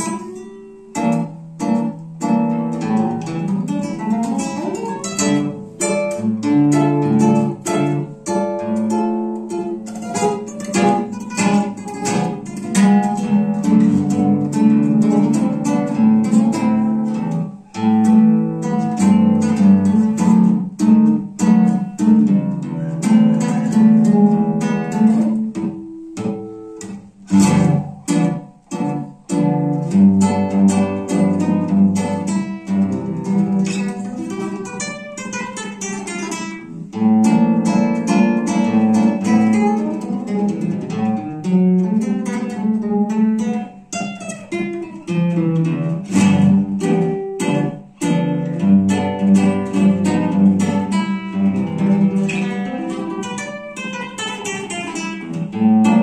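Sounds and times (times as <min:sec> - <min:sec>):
classical guitar playing tango: 0:00.0 - 0:56.0.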